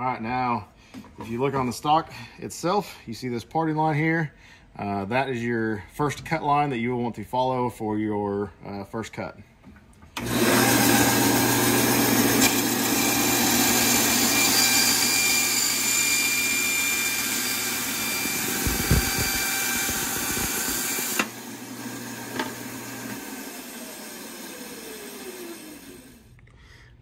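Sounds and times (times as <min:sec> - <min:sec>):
band saw cutting plastic: 0:10.2 - 0:26.3
motor hum: 0:10.2 - 0:26.3.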